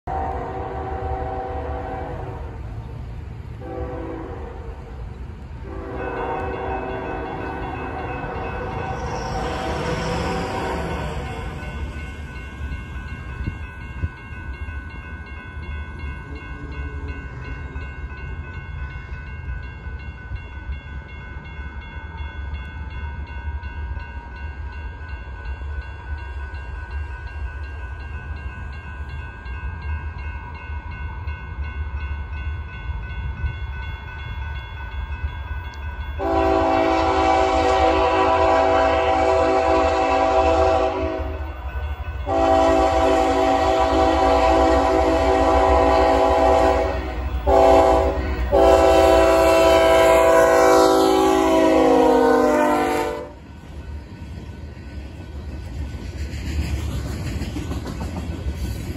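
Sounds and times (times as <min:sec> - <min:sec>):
train air horn: 0:00.0 - 0:02.7, 0:03.6 - 0:04.9, 0:05.6 - 0:11.6, 0:36.2 - 0:41.5, 0:42.3 - 0:53.4.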